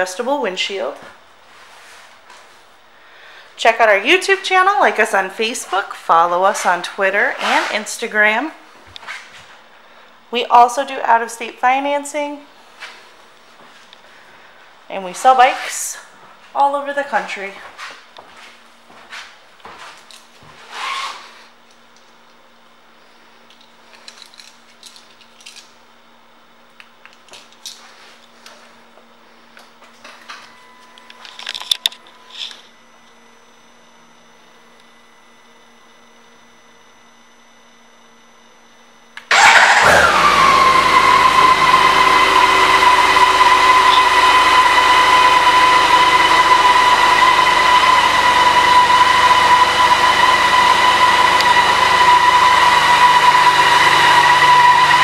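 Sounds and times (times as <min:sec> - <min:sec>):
motorcycle engine starting and idling: 0:39.2 - 0:55.0.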